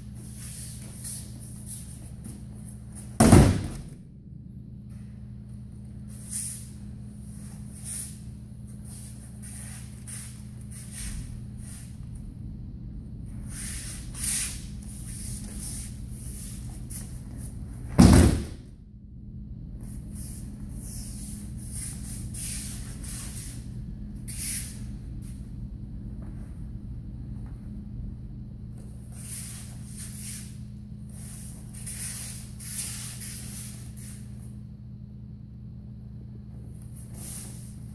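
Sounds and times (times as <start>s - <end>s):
steady low hum: 0.0s - 37.9s
body thud on mats: 3.2s - 4.0s, 17.9s - 18.6s
breakfall slap on mats: 3.2s - 4.0s, 17.9s - 18.6s.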